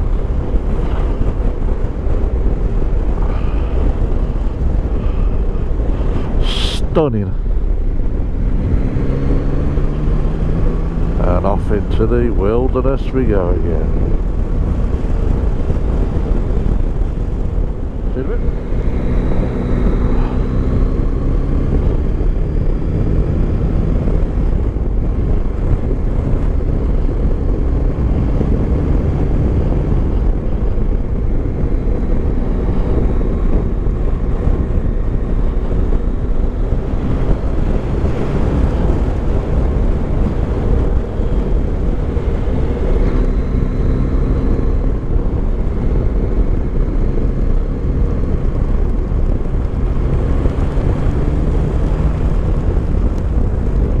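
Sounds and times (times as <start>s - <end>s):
wind rumbling on microphone: 0.0s - 54.0s.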